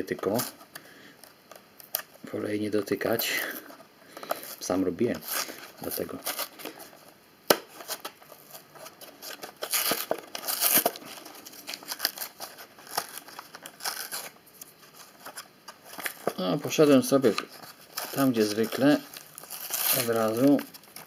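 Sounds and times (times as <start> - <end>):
packaging crinkling and rustling: 3.3 - 21.0
plastic packaging being torn: 5.1 - 6.9, 7.5 - 21.0.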